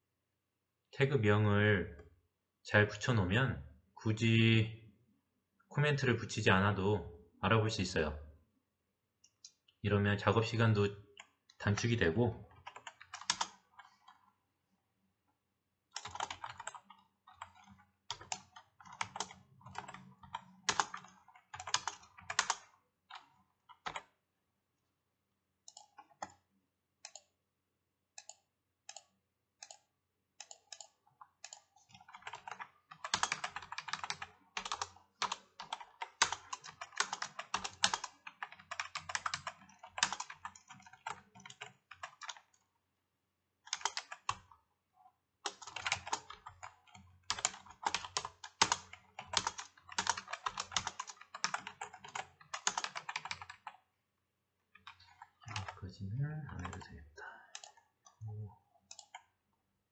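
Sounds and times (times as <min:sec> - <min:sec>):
typing on a keyboard: 0:11.2 - 0:14.3, 0:15.9 - 0:24.2, 0:25.6 - 0:26.4, 0:30.4 - 0:42.6, 0:43.6 - 0:44.6, 0:45.4 - 0:53.9, 0:54.8 - 0:55.8, 0:57.5 - 0:58.2, 0:58.8 - 0:59.3.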